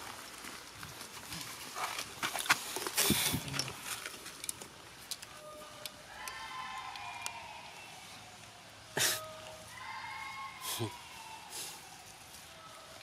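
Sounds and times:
rustling in dry leaves: 0.0 - 13.0
monkey high call: 8.9 - 12.8.

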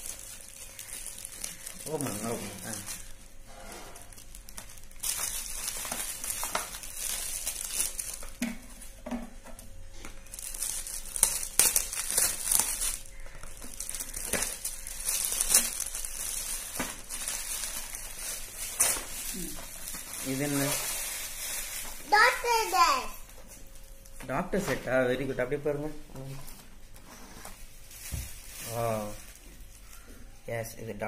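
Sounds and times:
foil wrap tearing and crumpling: 0.0 - 8.9, 10.1 - 23.1, 27.6 - 30.1.

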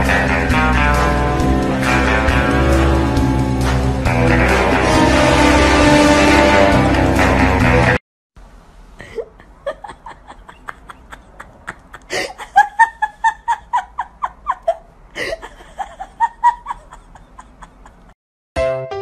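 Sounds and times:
person laughing: 9.0 - 18.2.

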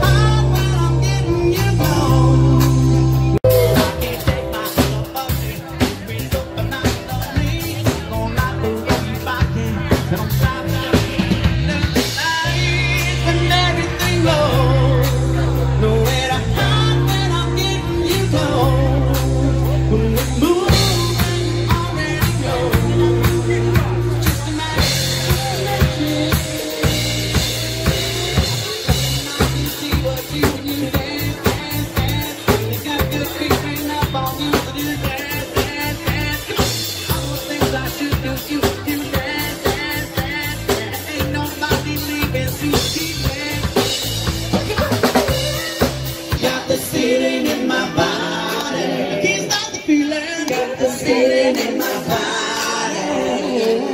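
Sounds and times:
drum kit beat: 0.0 - 53.9
electric bass guitar notes: 0.0 - 53.9
keyboards: 0.0 - 53.9
person singing into microphone: 0.0 - 53.9
several voices singing together: 46.4 - 53.9.

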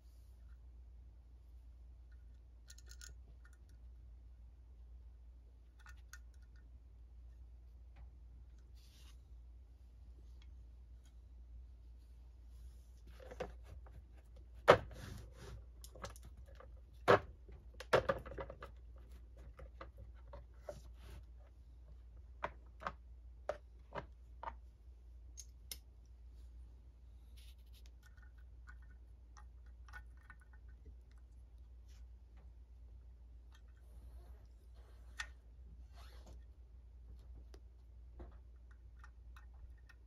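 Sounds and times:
metallic clicks of tools and screws: 2.1 - 3.8.

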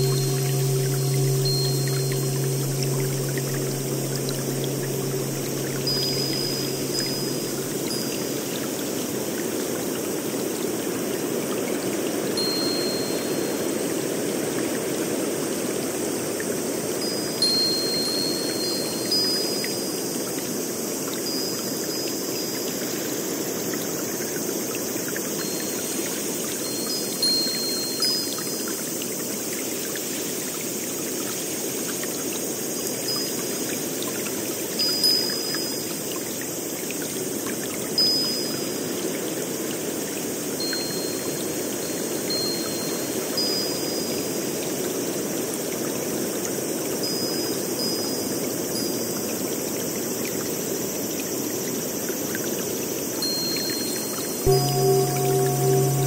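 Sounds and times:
short high tones: 0.0 - 8.5, 54.5 - 56.0
water drips: 0.0 - 9.4, 54.5 - 56.0.

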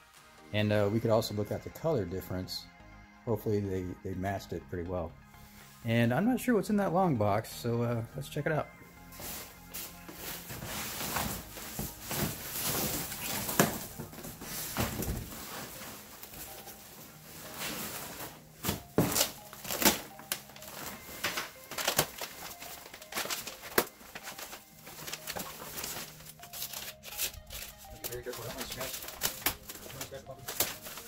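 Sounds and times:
plastic wrapping crinkling: 9.2 - 31.0.

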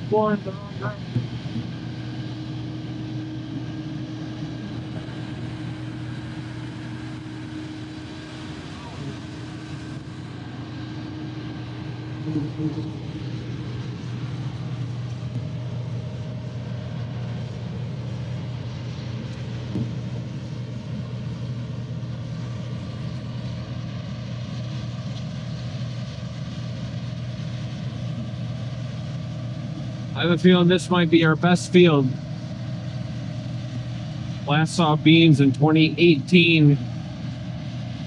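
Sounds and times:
combine harvester engine hum: 0.0 - 38.0.

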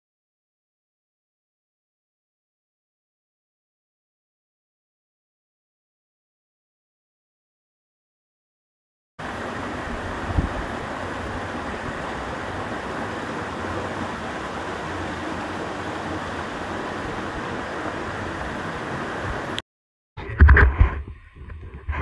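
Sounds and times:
stream flowing over rocks: 9.2 - 19.6.

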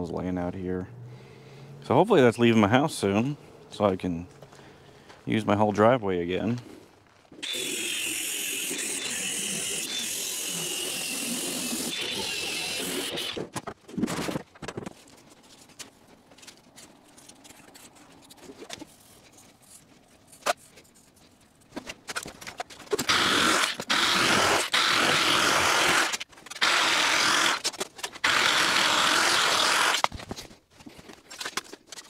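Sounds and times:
electric drill cutting sheet metal: 7.4 - 13.4, 23.0 - 30.1.

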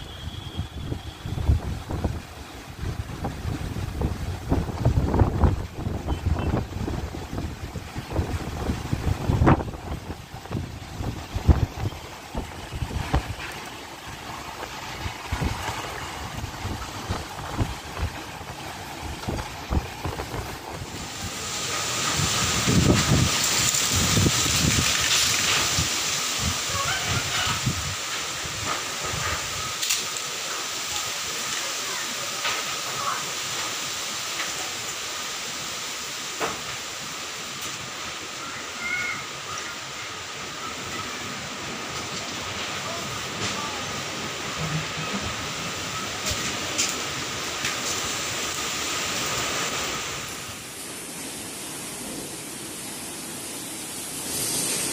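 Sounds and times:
wind rushing through trees: 0.0 - 54.9
wind buffeting microphone: 0.5 - 29.8.

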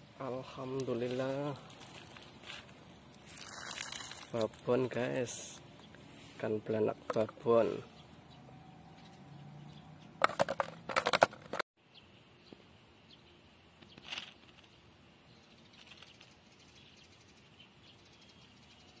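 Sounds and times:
faint outdoor background: 0.0 - 19.0.

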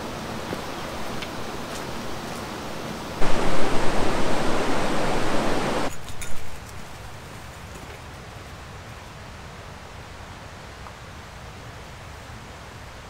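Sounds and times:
rushing water hiss: 0.0 - 5.9.

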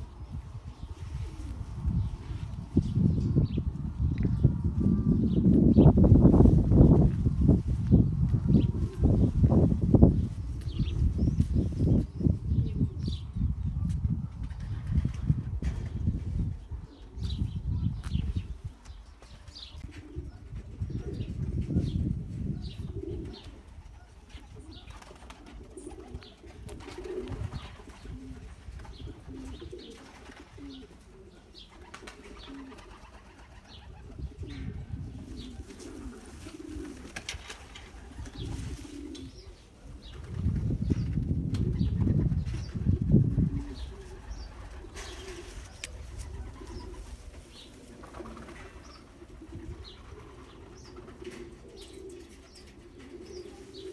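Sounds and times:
low rumbling on microphone: 0.0 - 19.0, 40.3 - 45.1
pigeons cooing: 8.3 - 9.6, 19.6 - 53.9.

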